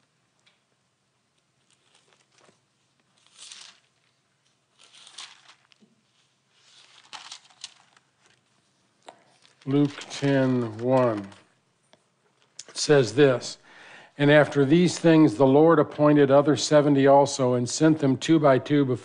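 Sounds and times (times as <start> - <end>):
pages rustling: 1.6 - 11.6.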